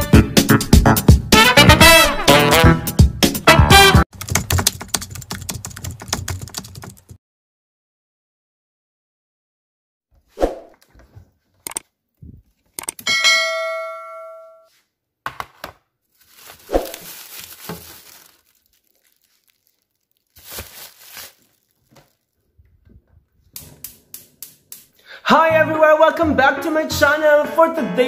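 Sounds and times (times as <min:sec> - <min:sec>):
bell-like ding: 0:13.1 - 0:14.7
plastic bags rustling: 0:16.0 - 0:22.7.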